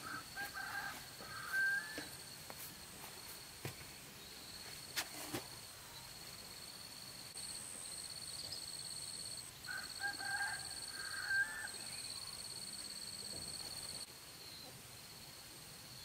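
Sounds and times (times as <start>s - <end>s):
bird calling: 0.0s - 2.2s.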